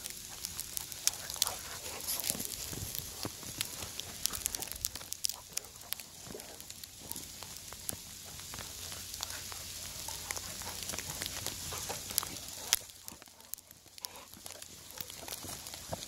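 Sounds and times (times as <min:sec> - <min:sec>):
paws crunching in snow: 0:00.0 - 0:16.0
steady hiss: 0:00.0 - 0:16.0.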